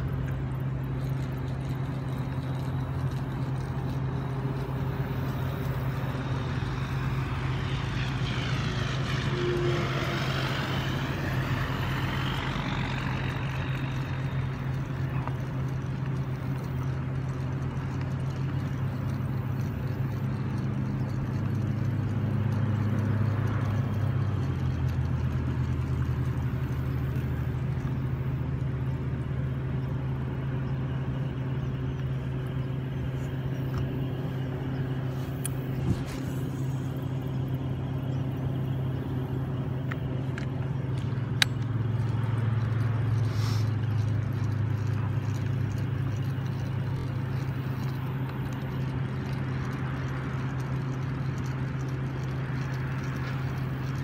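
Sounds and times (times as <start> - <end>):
low engine hum: 0.0 - 54.0
passing vehicle whoosh: 6.4 - 14.0.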